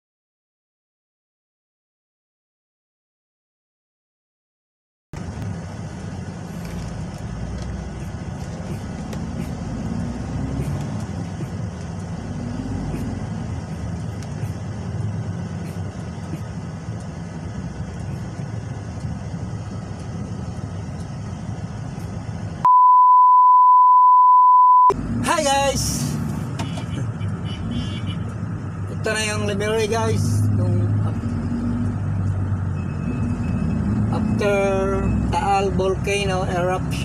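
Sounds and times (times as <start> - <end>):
truck engine rumble: 5.2 - 22.7, 24.9 - 37.0
electronic beep tone: 22.6 - 25.0, 32.8 - 35.4.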